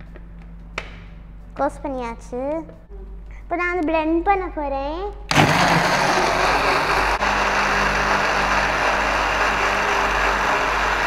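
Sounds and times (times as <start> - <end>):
blender running at full speed: 5.3 - 11.0.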